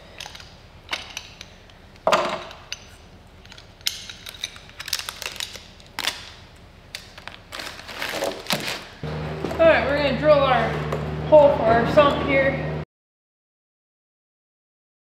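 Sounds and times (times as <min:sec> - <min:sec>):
metal parts clinking: 0:00.0 - 0:09.6.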